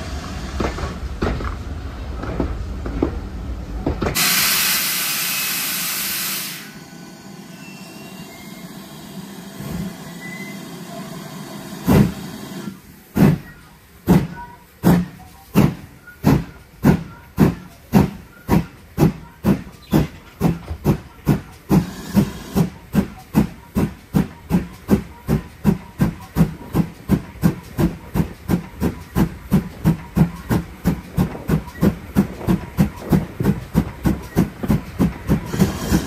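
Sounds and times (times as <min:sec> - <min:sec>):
train wheels clicking over rail joints: 0:00.2 - 0:04.8, 0:13.1 - 0:36.0
steam locomotive chuffing: 0:03.8 - 0:36.0
steam hissing: 0:04.2 - 0:36.0.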